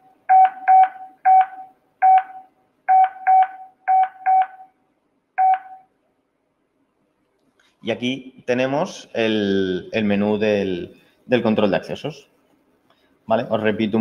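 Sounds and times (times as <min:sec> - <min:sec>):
short keypad beeps: 0:00.3 - 0:04.7, 0:05.4 - 0:05.9.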